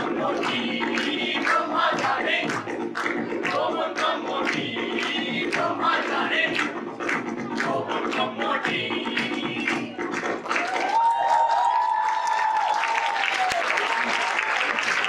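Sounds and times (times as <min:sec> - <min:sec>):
chorus of voices singing: 0:00.0 - 0:10.4
music with percussion beat: 0:00.0 - 0:11.3.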